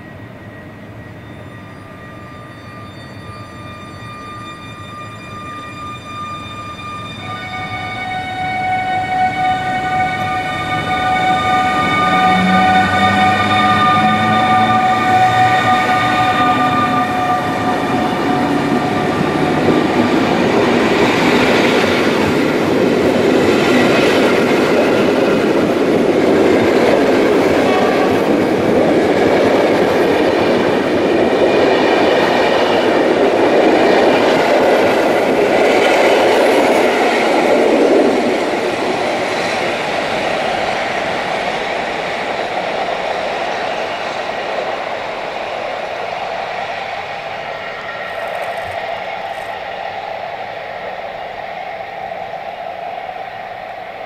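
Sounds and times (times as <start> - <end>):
chord of high tones: 0.0 - 25.4
train wheels rumbling on rails: 0.0 - 54.0.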